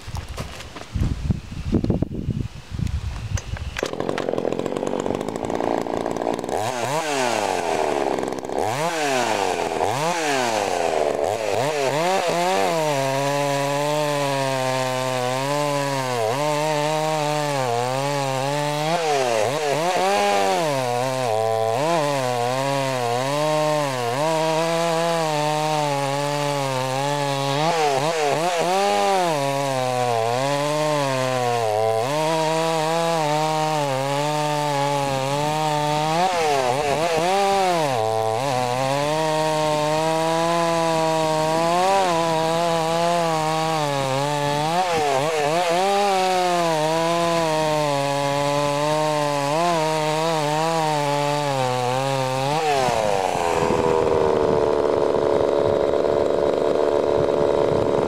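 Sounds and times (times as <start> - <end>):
chainsaw cutting log: 0.0 - 1.2, 3.2 - 58.0
chainsaw revving: 3.8 - 58.0.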